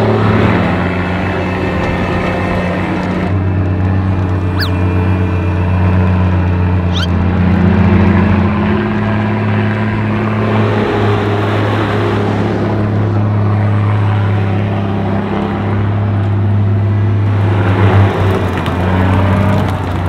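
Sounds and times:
tracked vehicle engine droning: 0:00.0 - 0:20.0
vehicle rumble and rattle: 0:00.0 - 0:20.0.

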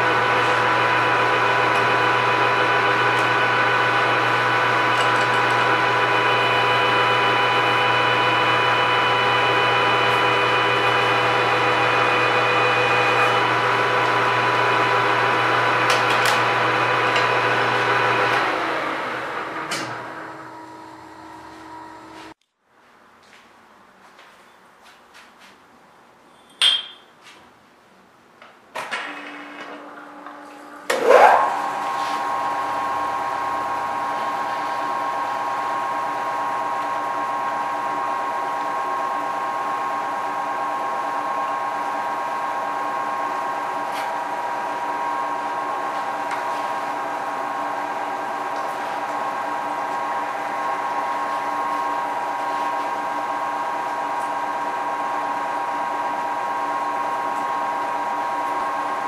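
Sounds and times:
milling machine motor humming: 0:00.0 - 0:22.4, 0:29.9 - 0:59.0
metallic knock: 0:26.5 - 0:27.1.

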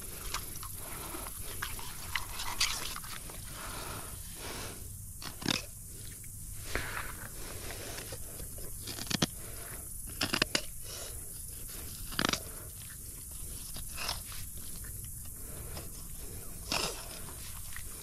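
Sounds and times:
knife crunching through fish: 0:08.8 - 0:09.3, 0:10.1 - 0:10.7.

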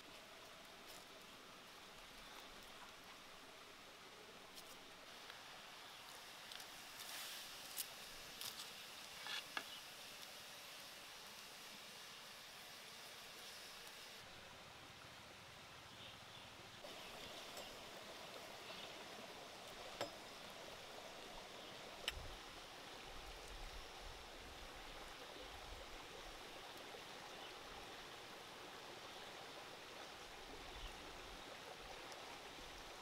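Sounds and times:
wood fire crackles: 0:06.1 - 0:14.2.

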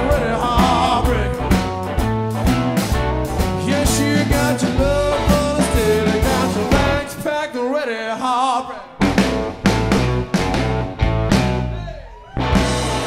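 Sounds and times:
person singing: 0:00.0 - 0:01.6, 0:03.6 - 0:09.0
blues-rock band playing: 0:00.0 - 0:07.2, 0:09.0 - 0:13.0.

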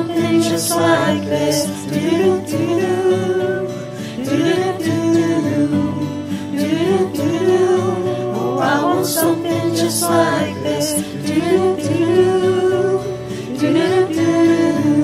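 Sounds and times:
instrumental backing: 0:00.0 - 0:15.0
voices singing wordless hook: 0:00.0 - 0:15.0.

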